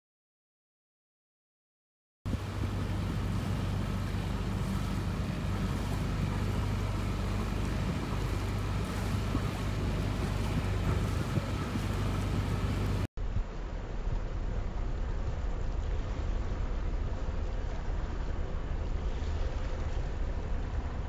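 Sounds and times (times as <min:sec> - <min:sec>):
boat engine humming: 0:02.3 - 0:21.0
wind noise on microphone: 0:02.3 - 0:21.0.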